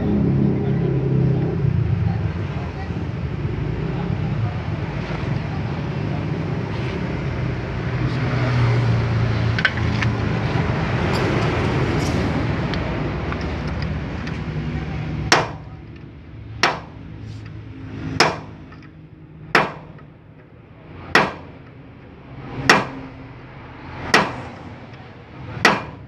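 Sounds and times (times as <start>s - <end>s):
sledgehammer striking steel: 15.3s - 15.7s, 16.6s - 17.0s, 18.2s - 18.6s, 19.5s - 20.0s, 21.1s - 21.5s, 22.6s - 23.0s, 24.1s - 24.5s, 25.6s - 26.0s.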